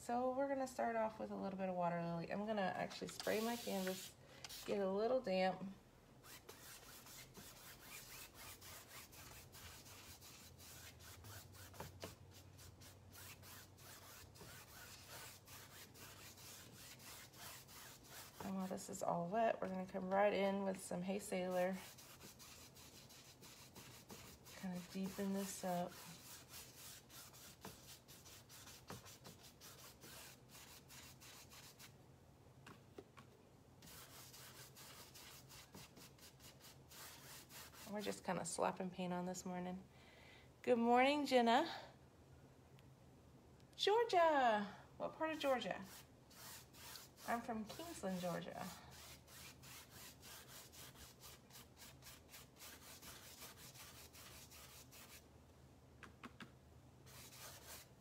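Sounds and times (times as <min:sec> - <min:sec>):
paintbrush scrubbing on canvas: 0:02.9 - 0:04.9, 0:06.2 - 0:19.1, 0:21.1 - 0:31.9, 0:33.8 - 0:38.2, 0:45.3 - 0:55.2, 0:57.1 - 0:58.0.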